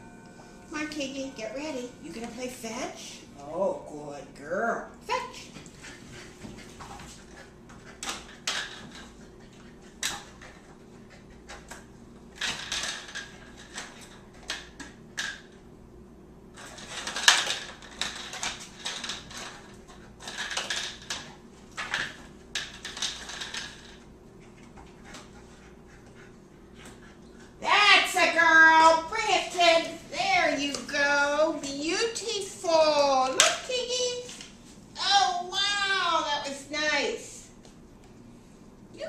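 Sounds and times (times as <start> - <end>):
plastic tubes clattering on tile: 12.4 - 15.4, 16.6 - 24.0.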